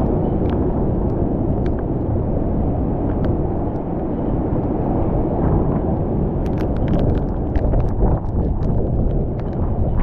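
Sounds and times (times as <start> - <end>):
wind buffeting microphone: 0.0 - 10.0
rain ticks on camera: 6.4 - 10.0.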